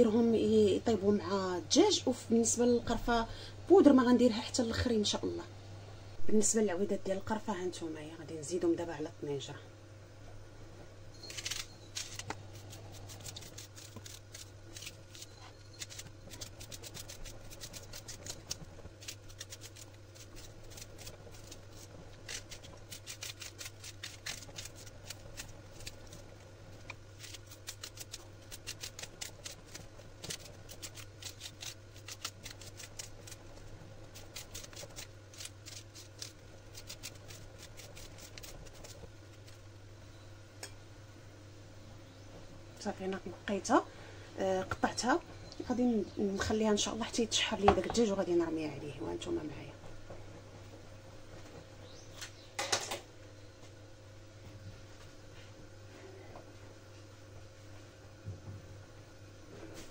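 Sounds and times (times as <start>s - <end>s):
knife slicing onion: 11.2s - 26.2s, 26.8s - 39.6s.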